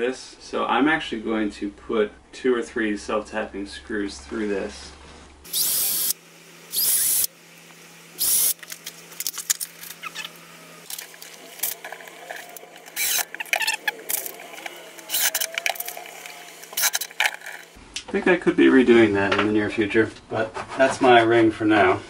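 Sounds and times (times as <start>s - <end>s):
cordless drill driving screws: 5.5s - 7.3s, 8.2s - 8.6s, 12.4s - 14.4s, 15.0s - 17.6s
screws and plastic parts rattling: 8.2s - 17.8s.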